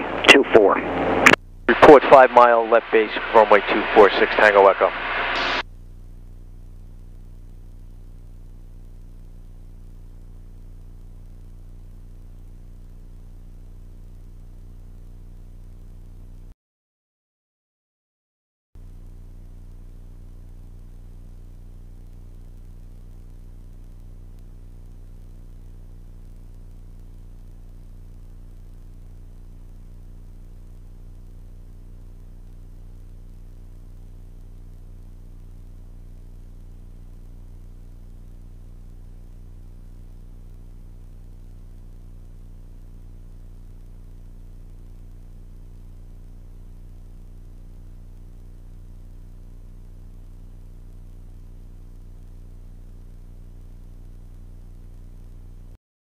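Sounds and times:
propeller plane engine drone: 0:00.0 - 0:05.6.

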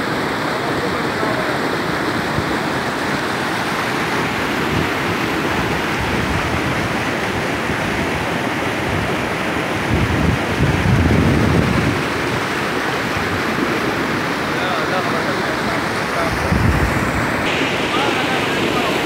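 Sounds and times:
stream rushing over rocks: 0:00.0 - 0:19.0
wind buffeting microphone: 0:03.9 - 0:14.6, 0:15.5 - 0:17.5.

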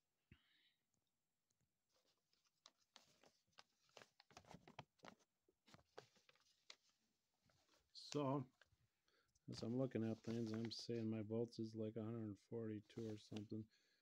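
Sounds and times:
soft rustles: 0:01.9 - 0:08.2, 0:09.6 - 0:11.0.

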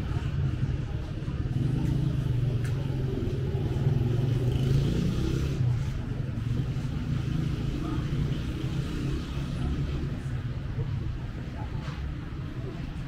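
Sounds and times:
traffic engine drone: 0:00.0 - 0:13.0.

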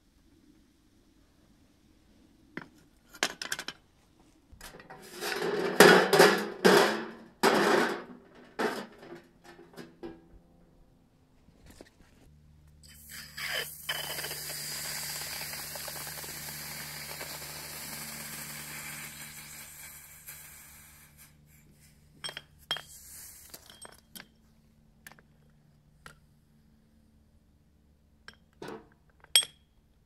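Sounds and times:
water sizzling on hot metal: 0:12.8 - 0:21.4.

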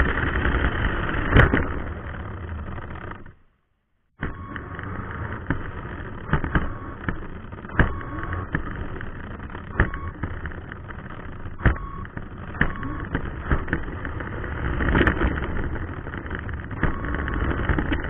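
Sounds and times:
toy truck electric motor: 0:04.4 - 0:18.0
sharp knocks from bumps: 0:05.4 - 0:14.2.

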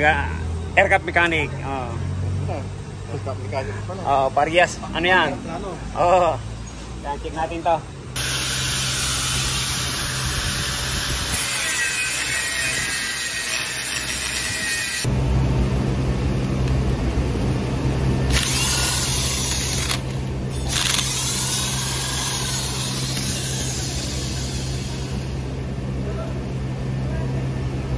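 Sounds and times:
steady low hum: 0:07.8 - 0:27.9
angle grinder grinding steel: 0:08.2 - 0:15.1, 0:18.3 - 0:25.6
electric driver turning bolts: 0:08.2 - 0:15.1, 0:18.3 - 0:25.4.

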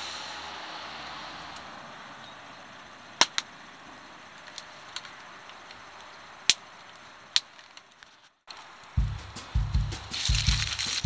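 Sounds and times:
hiss of flames: 0:00.0 - 0:07.3
wood fire crackling and popping: 0:03.2 - 0:09.0, 0:09.8 - 0:11.0.

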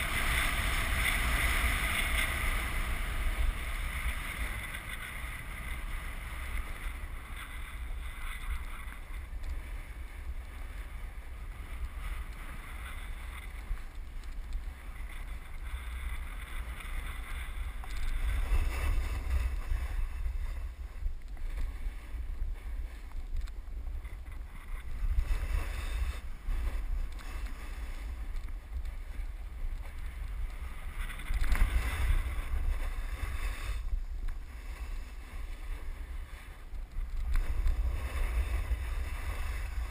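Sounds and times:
snowboard scraping on snow: 0:00.0 - 0:13.9, 0:14.7 - 0:23.0, 0:23.8 - 0:39.9
wind buffeting microphone: 0:00.0 - 0:39.9.

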